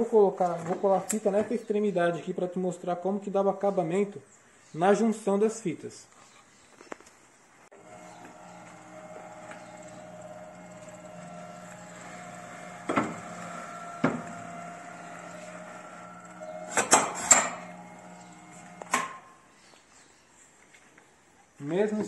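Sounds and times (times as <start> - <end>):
edge-banding machine humming: 7.7 - 19.4.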